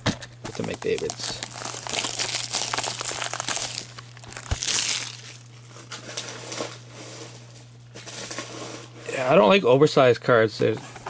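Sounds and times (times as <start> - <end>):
steady low hum: 0.0 - 11.0
plastic packaging crinkling: 0.4 - 6.8.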